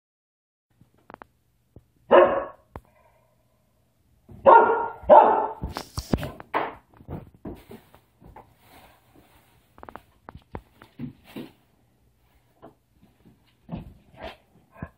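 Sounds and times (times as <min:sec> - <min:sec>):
dog barking: 0:02.1 - 0:02.7, 0:04.4 - 0:05.7.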